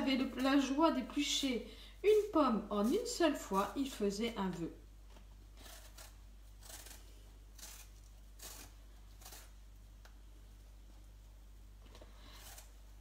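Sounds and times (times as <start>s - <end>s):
peeler scraping apple skin: 2.1s - 4.3s, 5.6s - 9.6s, 12.2s - 13.0s.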